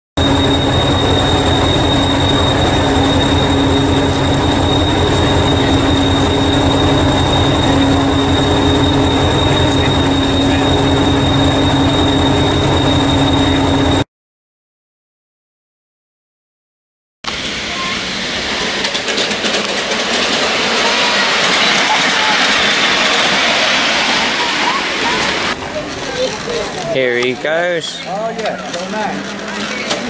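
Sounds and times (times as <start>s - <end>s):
high-pitched whine: 0.2s - 14.0s, 17.3s - 27.2s
train engine idling: 0.2s - 14.0s, 17.3s - 30.0s.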